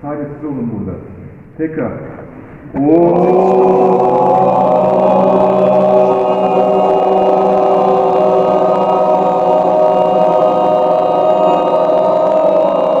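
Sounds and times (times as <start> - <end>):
group chanting held vowel tone: 2.8 - 13.0.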